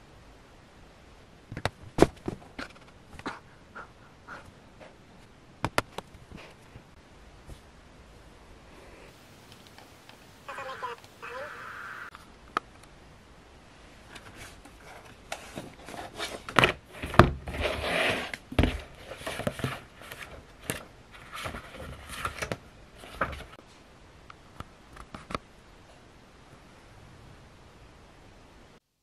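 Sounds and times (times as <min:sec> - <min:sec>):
book knocking and scraping on desk: 0:14.2 - 0:23.5.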